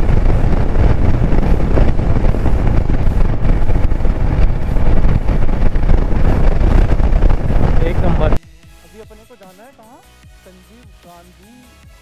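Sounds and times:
loud wind blast on microphone: 0.0s - 8.4s.

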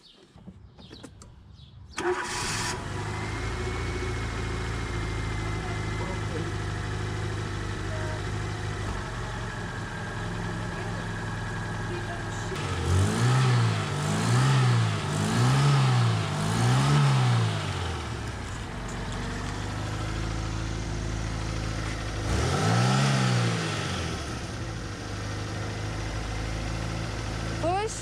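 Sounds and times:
car engine idling and revving: 0.8s - 28.0s.

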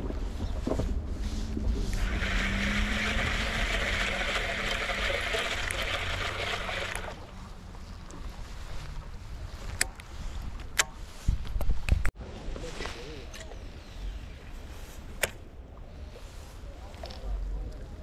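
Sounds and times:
low wind rumble on microphone: 0.0s - 5.0s, 7.0s - 18.0s
fishing reel gear whir: 1.9s - 7.2s.

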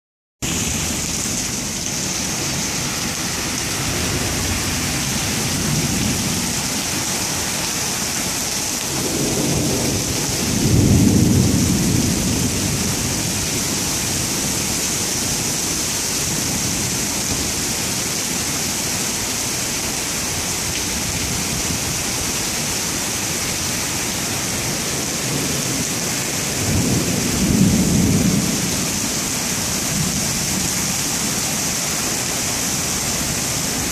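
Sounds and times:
heavy rain pouring: 0.4s - 33.9s
low rumbles of thunder: 8.9s - 13.8s, 25.0s - 29.1s.

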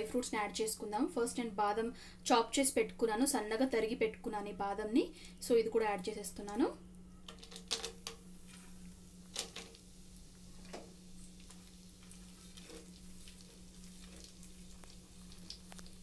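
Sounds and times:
soft sizzle: 0.0s - 16.0s
nuts frying with crackles: 6.9s - 16.0s.

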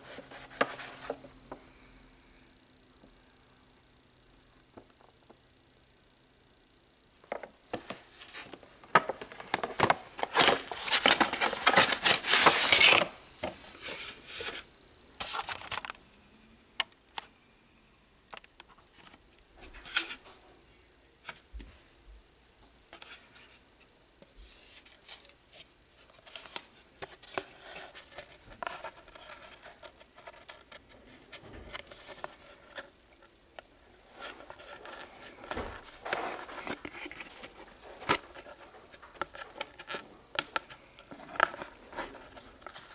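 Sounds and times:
cardboard box rustling: 7.8s - 14.7s.

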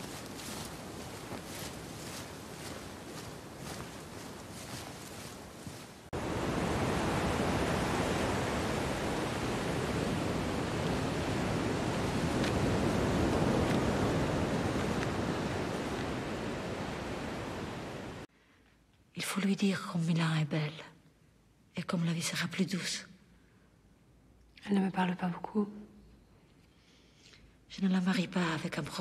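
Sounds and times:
footsteps in fallen leaves: 0.0s - 6.1s
wind on a beach: 0.0s - 18.3s
sea surf: 6.2s - 18.3s.

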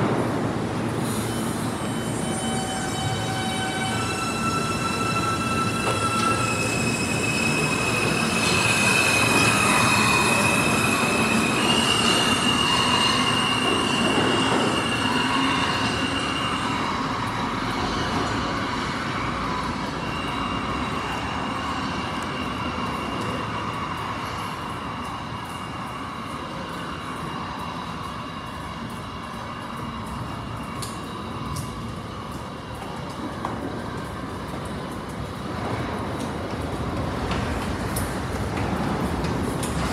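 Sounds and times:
subway train pulling away: 0.0s - 39.9s.

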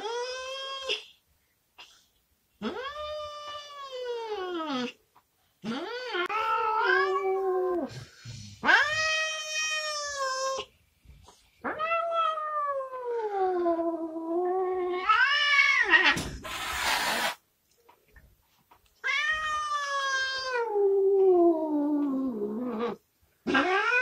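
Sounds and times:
cat meowing: 5.8s - 7.8s, 19.0s - 21.2s.

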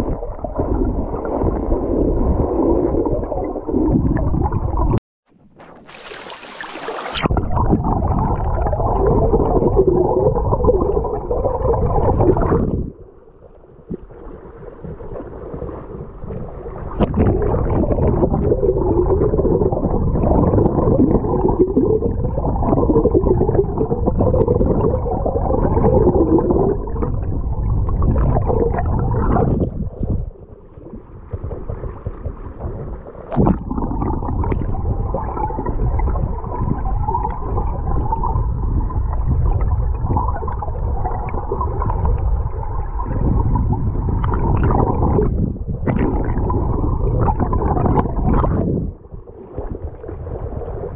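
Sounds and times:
muffled stream water gurgling: 0.0s - 50.9s.

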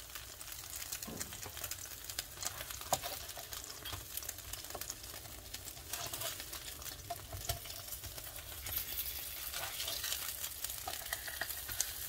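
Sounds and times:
food sizzling on griddle: 0.0s - 12.0s
spatula scraping griddle: 5.7s - 12.0s.

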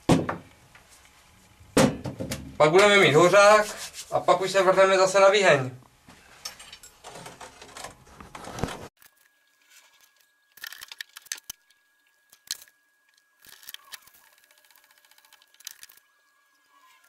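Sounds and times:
small metal parts clicking: 10.6s - 11.6s, 13.4s - 16.1s.

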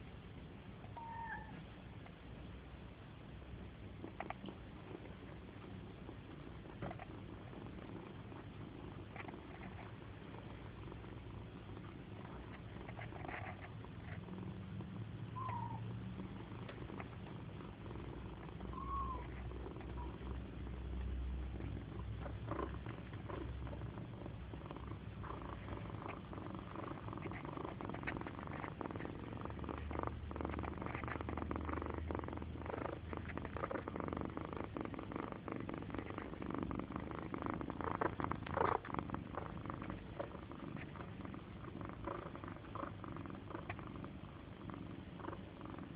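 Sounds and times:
cat purring: 0.0s - 45.9s
cat high squeaks: 1.0s - 1.6s, 15.4s - 15.8s, 18.8s - 19.3s.

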